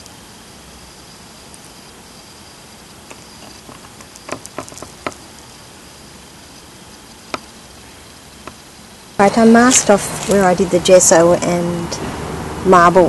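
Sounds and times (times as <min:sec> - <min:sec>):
steady quiet hiss: 0:00.0 - 0:13.0
light clicks and taps: 0:03.1 - 0:05.5.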